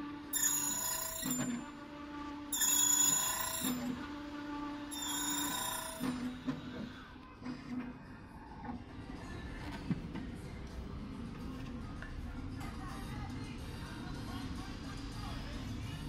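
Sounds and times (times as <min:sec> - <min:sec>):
cutter ringing into metal: 0:00.3 - 0:01.7, 0:02.6 - 0:04.0, 0:04.9 - 0:06.3.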